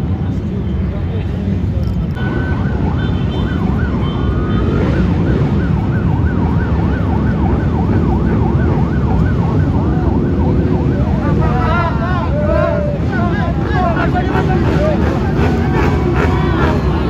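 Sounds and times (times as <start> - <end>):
low rumble of traffic: 0.0 - 17.0
sirens yelping: 2.2 - 17.0.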